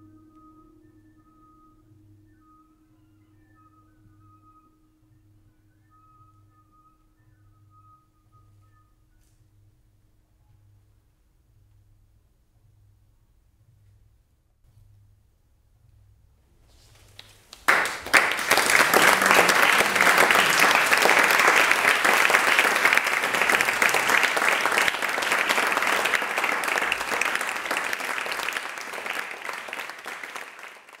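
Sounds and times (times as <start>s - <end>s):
audience clapping: 17.0s - 31.0s.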